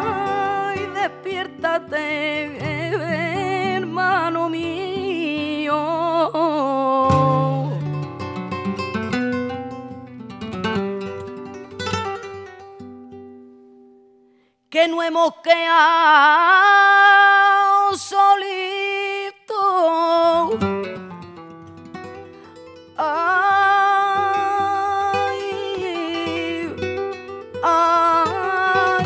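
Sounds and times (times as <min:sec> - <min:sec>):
woman singing: 0:00.0 - 0:08.2, 0:14.7 - 0:21.4, 0:22.8 - 0:29.0
flamenco guitar: 0:00.0 - 0:29.0.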